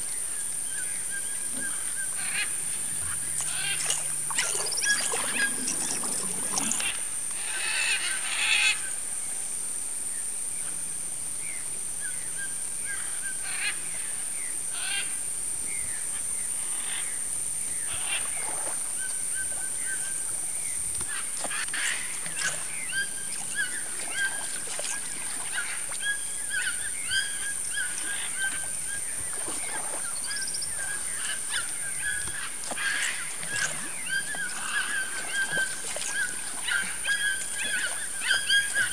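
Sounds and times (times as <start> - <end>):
wild birds chirping and squawking: 1.0 - 8.8, 16.4 - 38.9.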